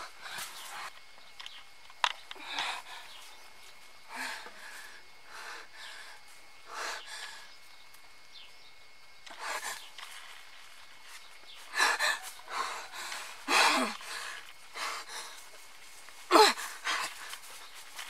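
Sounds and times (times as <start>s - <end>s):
woman gasping and sighing: 11.7s - 15.4s.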